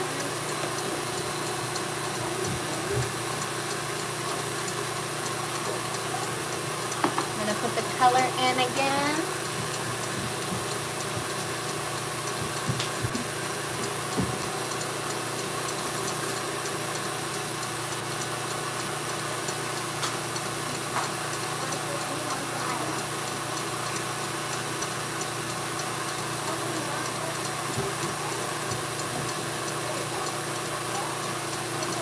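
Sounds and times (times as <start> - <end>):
stand mixer motor humming: 0.0 - 32.0.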